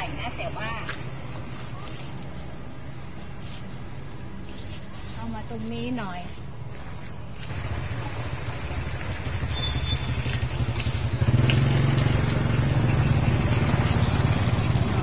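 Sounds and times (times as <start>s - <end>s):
small engine droning: 7.4s - 15.0s.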